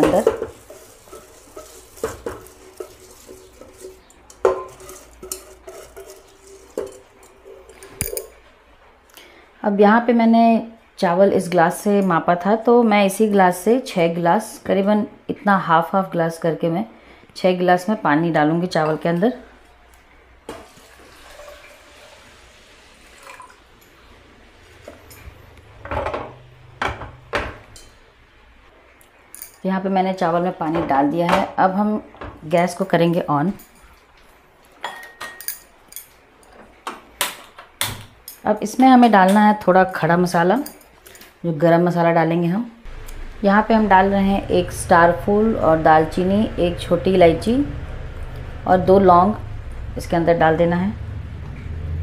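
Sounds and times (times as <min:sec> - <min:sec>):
water trickling into pot: 0:00.0 - 0:08.4, 0:20.5 - 0:24.0
wet rice grains sliding: 0:00.5 - 0:06.8
metal container knocking on pot: 0:01.6 - 0:07.1.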